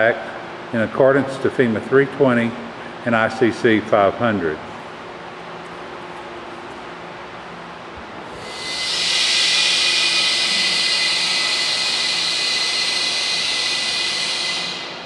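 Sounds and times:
compressed air hissing: 0:08.3 - 0:15.0.

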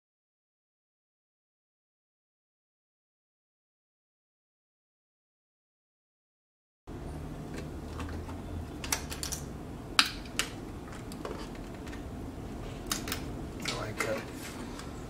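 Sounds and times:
low steady hum: 0:06.9 - 0:15.0.

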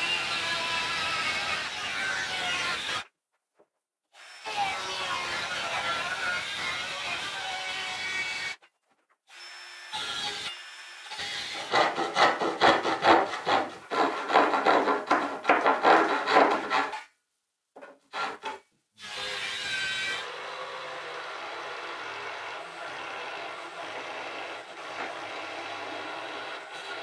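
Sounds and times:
handsaw cutting plywood: 0:11.1 - 0:17.1, 0:18.1 - 0:27.0
electric jigsaw cutting: 0:19.0 - 0:27.0.

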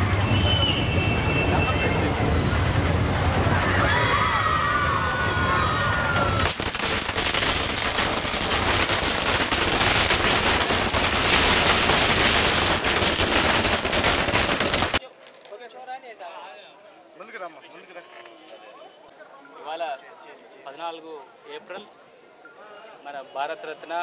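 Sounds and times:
firecrackers crackling: 0:04.9 - 0:15.6.

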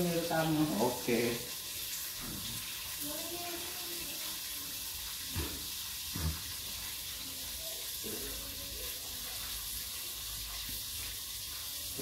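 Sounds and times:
corn kernels sizzling in wok: 0:00.0 - 0:12.0.

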